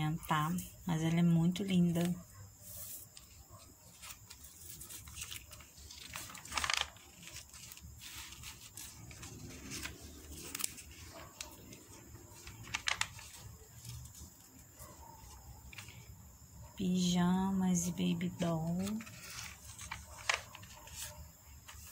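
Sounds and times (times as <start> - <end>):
paper pages rustling: 0.3 - 16.1, 18.4 - 21.9.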